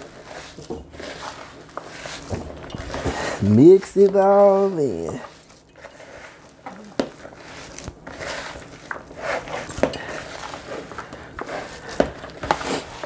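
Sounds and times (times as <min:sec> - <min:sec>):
hands kneading wet mixture: 0:00.0 - 0:13.0.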